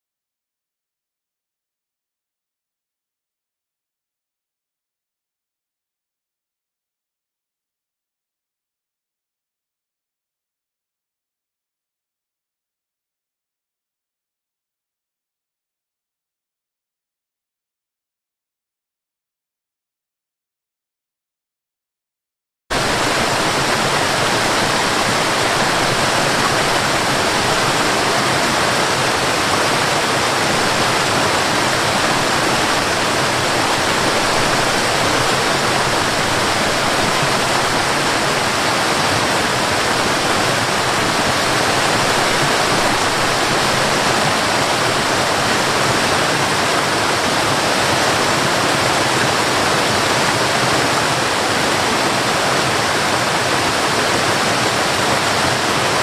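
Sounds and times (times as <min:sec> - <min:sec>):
waterfall rushing over rocks: 0:22.7 - 0:56.0.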